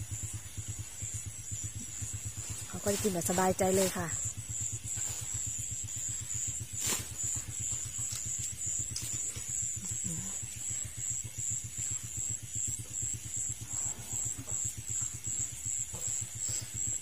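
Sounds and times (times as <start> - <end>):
high-pitched insect drone: 0.0 - 17.0
low pulsing throb: 0.0 - 17.0.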